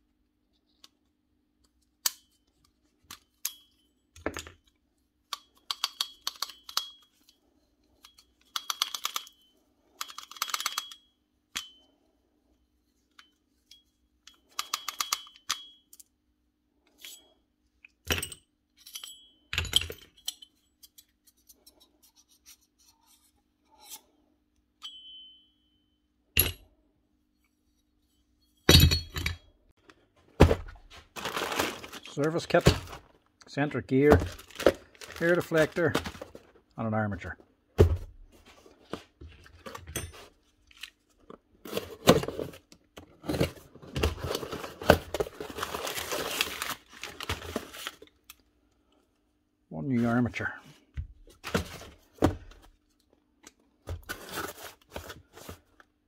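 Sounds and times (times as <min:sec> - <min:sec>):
metal parts clinking and rattling: 0:05.4 - 0:11.9, 0:17.9 - 0:22.1, 0:28.6 - 0:29.5
metal parts knocking on workbench: 0:28.6 - 0:29.4.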